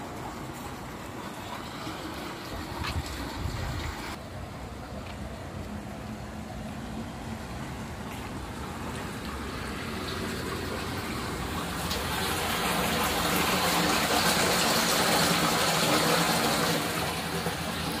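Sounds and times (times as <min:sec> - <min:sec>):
storm water rushing through sewer: 0:00.0 - 0:18.0.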